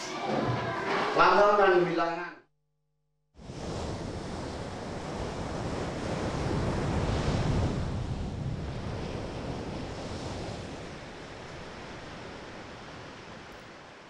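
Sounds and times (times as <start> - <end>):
rush of sea water: 3.4 - 14.0
wind: 3.4 - 14.0.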